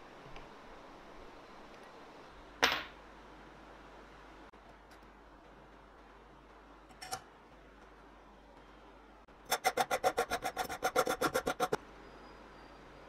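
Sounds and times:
file rasping on steel tube: 9.5s - 11.8s.

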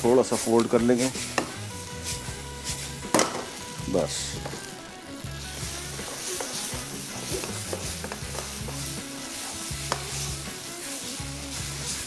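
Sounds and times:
food sizzling in a wok: 0.0s - 12.0s
spatula clicking against pan: 7.3s - 8.9s, 9.8s - 10.2s.

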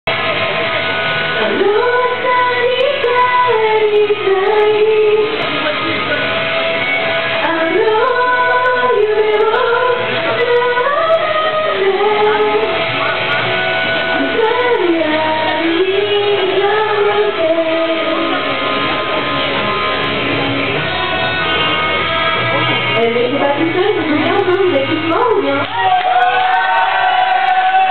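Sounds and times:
backing track music: 0.1s - 27.9s
woman singing karaoke: 1.3s - 6.4s, 7.2s - 13.0s, 13.9s - 19.2s, 22.8s - 25.8s.

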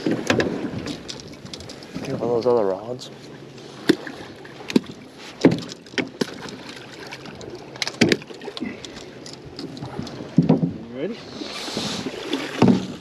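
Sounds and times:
wind: 0.0s - 13.0s
water washing: 3.7s - 13.0s
fishing gear knocking and clicking: 7.3s - 10.7s.

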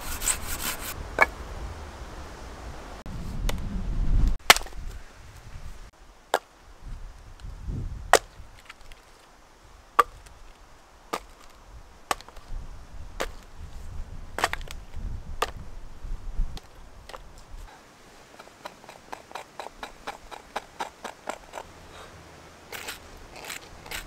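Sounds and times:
axe chopping logs: 4.4s - 4.9s, 10.0s - 10.3s, 11.1s - 11.5s, 12.1s - 12.4s, 14.4s - 14.8s, 18.4s - 21.7s.

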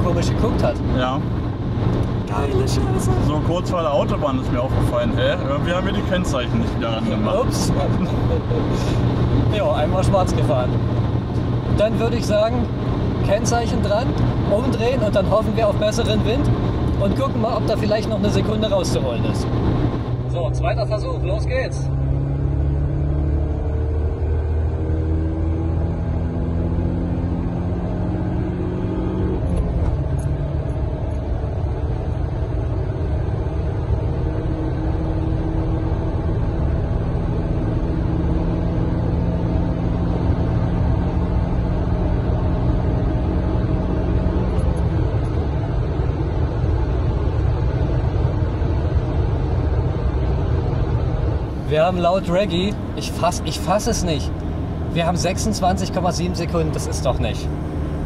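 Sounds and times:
car engine accelerating: 0.0s - 58.0s
road and wind rumble: 0.0s - 58.0s.

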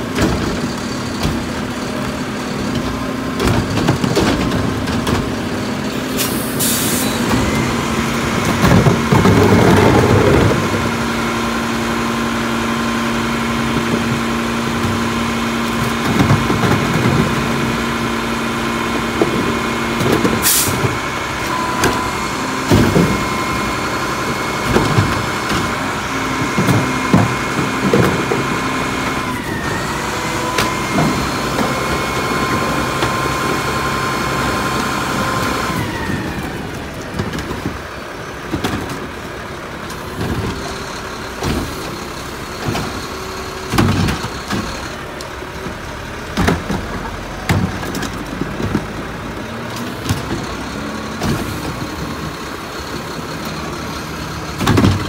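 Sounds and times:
garbage truck engine: 0.0s - 55.0s
hydraulic pump whine: 6.0s - 11.2s, 19.1s - 36.9s
plastic carts clunking: 54.5s - 55.0s.

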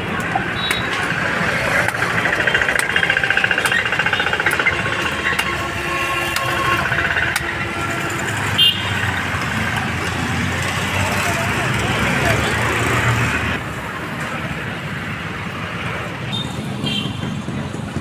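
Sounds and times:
vehicle engine throbbing: 0.0s - 13.7s.

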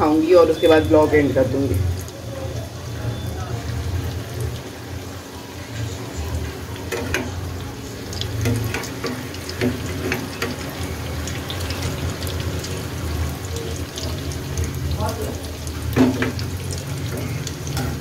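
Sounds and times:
food deep-frying in hot oil: 0.0s - 18.0s
oil crackling: 0.0s - 18.0s
slotted spoon stirring in oil: 6.4s - 18.0s.

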